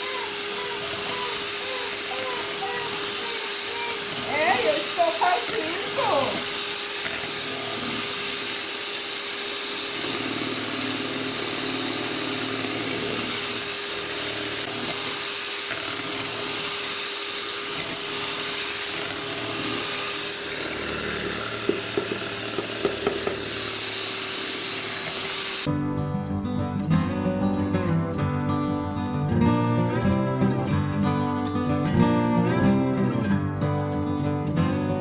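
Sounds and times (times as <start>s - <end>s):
electric hand mixer whisking: 0.0s - 25.7s.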